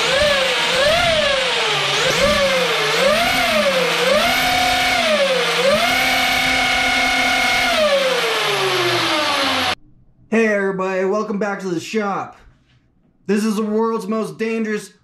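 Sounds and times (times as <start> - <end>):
rc car motor whining: 0.0 - 9.8.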